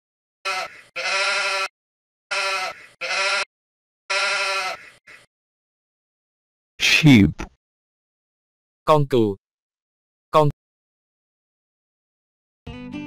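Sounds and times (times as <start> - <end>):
sheep bleating: 0.4 - 1.7, 2.3 - 3.5, 4.1 - 5.3.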